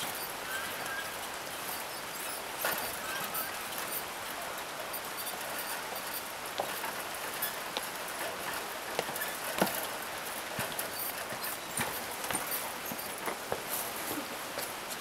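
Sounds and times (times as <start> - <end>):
river rushing: 0.0 - 15.0
footsteps on wooden planks: 5.2 - 15.0.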